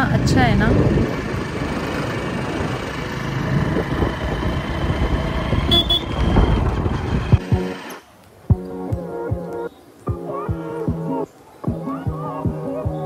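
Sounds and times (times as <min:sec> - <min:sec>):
wind buffeting microphone: 0:00.0 - 0:07.5
motorcycle running: 0:00.0 - 0:08.0
music with steady beat: 0:08.5 - 0:13.0.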